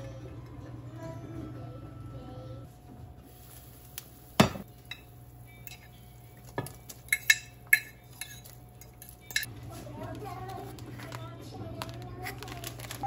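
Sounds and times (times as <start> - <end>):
fork scraping and clinking on dish: 4.8 - 9.5.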